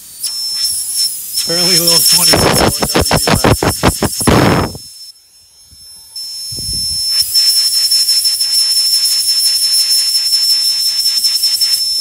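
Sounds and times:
compressed air hissing into tire: 0.0s - 4.9s
air compressor pulsing whistle: 0.0s - 12.0s.

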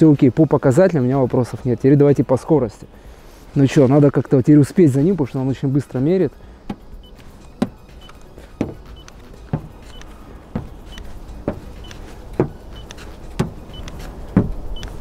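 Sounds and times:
probe knocking on metal panel: 8.6s - 8.9s, 9.5s - 9.8s, 14.4s - 14.6s.

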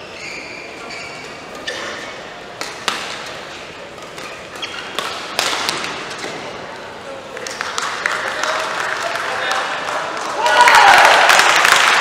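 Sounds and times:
sneakers squeaking on court: 0.0s - 6.6s
racket hitting shuttlecock: 1.5s - 6.6s.

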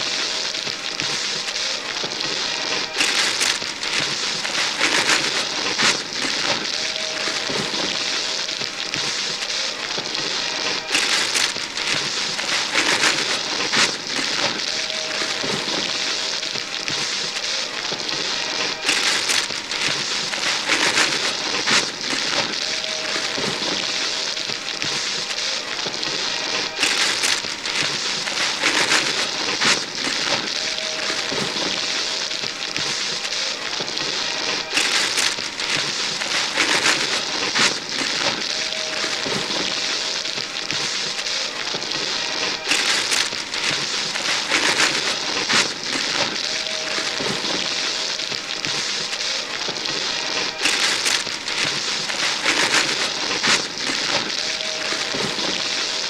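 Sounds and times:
wrapping paper tearing and crumpling: 0.0s - 56.0s.

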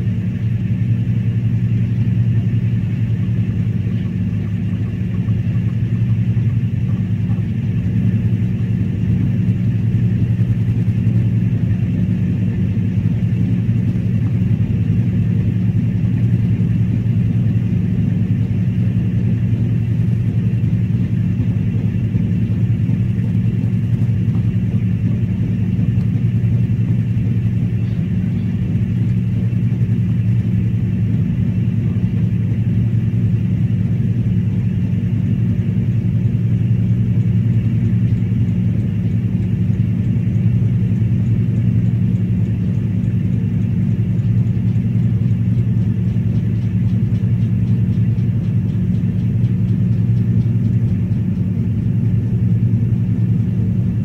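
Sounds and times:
electrical appliance humming: 3.1s - 54.0s.

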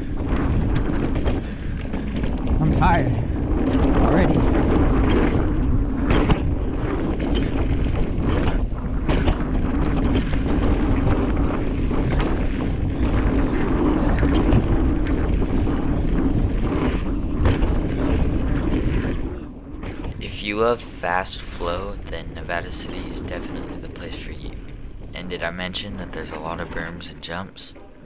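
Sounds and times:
bike clacking and rattling: 0.0s - 20.2s
bike tyres rolling on dirt: 0.0s - 20.3s
wind buffeting microphone: 0.0s - 28.0s.

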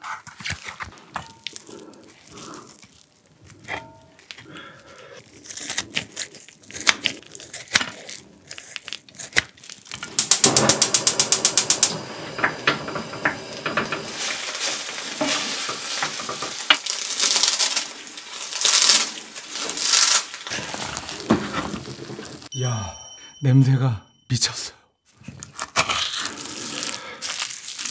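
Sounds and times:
dried seaweed crackling: 1.3s - 10.3s, 14.0s - 22.5s, 25.6s - 27.9s
spatula scraping pan: 10.0s - 16.8s
rice stir-frying in pan: 12.7s - 22.5s.

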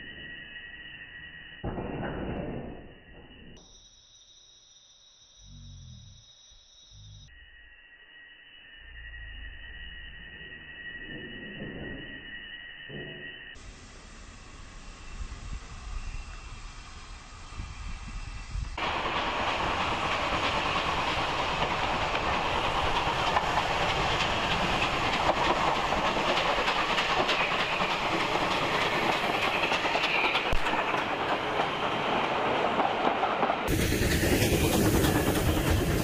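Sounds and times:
train wheels rumbling and clattering: 12.9s - 36.0s
steam hissing: 13.6s - 36.0s.

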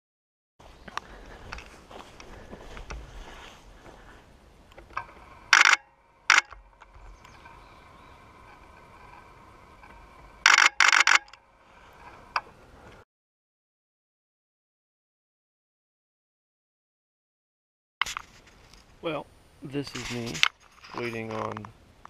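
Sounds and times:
faint steady hum: 0.6s - 13.0s
camera shutter bursts: 5.5s - 6.6s, 10.4s - 11.4s.

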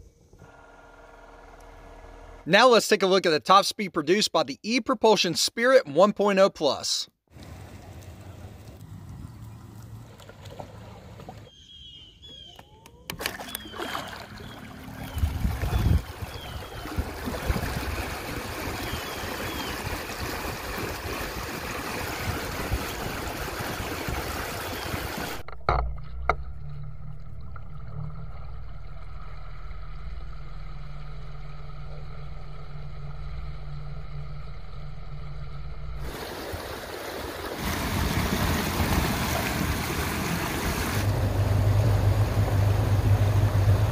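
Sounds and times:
steady low hum: 0.0s - 2.6s, 25.3s - 37.0s, 39.6s - 43.9s
water rushing and splashing: 13.2s - 31.8s, 36.0s - 43.9s
wind on microphone: 15.1s - 19.0s.

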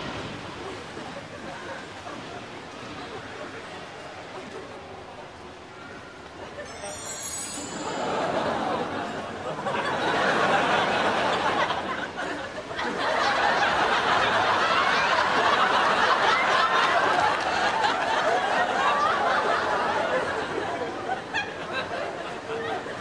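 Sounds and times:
studio audience laughing: 7.8s - 23.0s.

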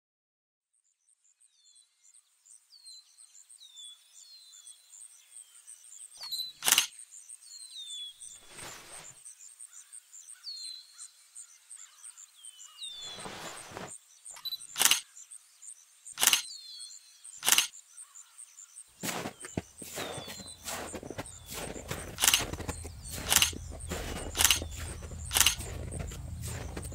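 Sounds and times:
birds chirping: 6.2s - 7.0s, 7.6s - 9.2s, 11.8s - 26.9s
sharp clicks: 6.6s - 6.9s, 14.4s - 15.0s, 16.2s - 16.5s, 17.4s - 17.7s, 19.0s - 26.9s
brief rustling: 8.4s - 9.2s, 13.0s - 13.9s, 19.0s - 26.9s.

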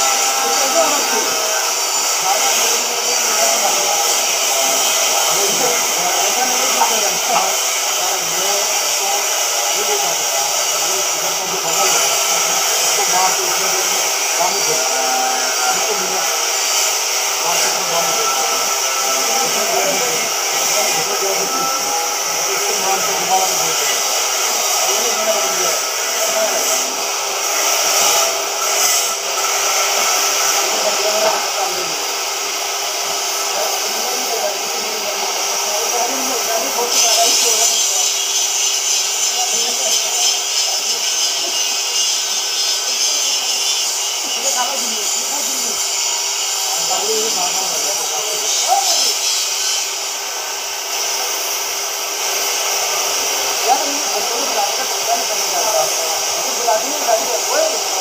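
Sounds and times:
cutting torch hissing: 0.0s - 58.0s.

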